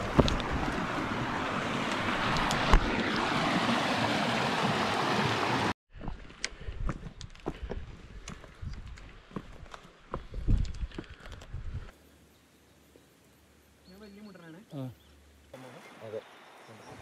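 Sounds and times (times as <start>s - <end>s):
creek rushing: 0.0s - 5.8s.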